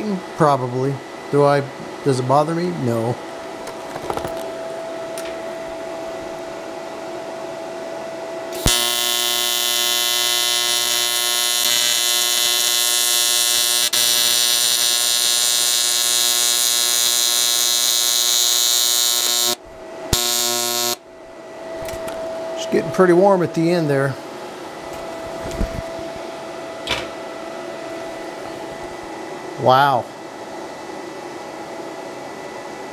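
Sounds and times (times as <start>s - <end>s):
welding arc buzzing: 8.5s - 21.2s.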